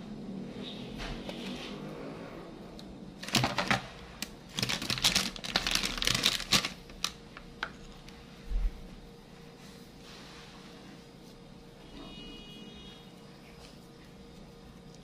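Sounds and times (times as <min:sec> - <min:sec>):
plastic bag crackling: 0:03.2 - 0:07.7.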